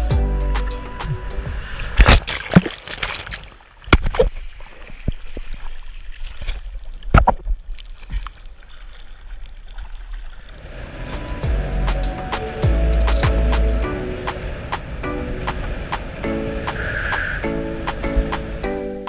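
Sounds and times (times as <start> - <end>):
sea water splashing and gurgling: 0.6 - 19.0
sharp splashes or knocks: 1.9 - 8.2.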